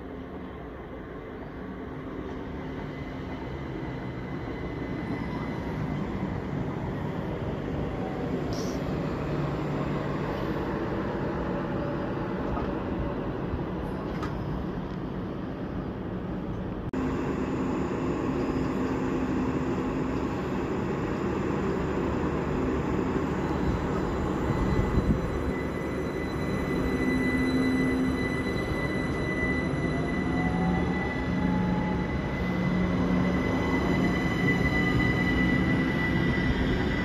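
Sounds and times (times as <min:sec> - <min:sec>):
train mechanical hum: 0:00.0 - 0:37.0
high-pitched whine: 0:17.0 - 0:37.0.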